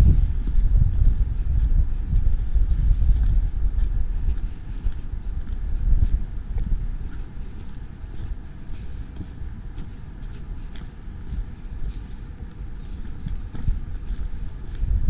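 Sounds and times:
footsteps on gravel: 0.0 - 15.0
wind rumble on microphone: 0.0 - 15.0.

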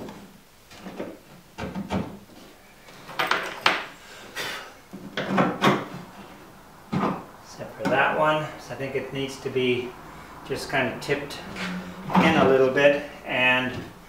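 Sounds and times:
wood knocking and scraping on wood: 4.9 - 6.2, 6.9 - 8.0.

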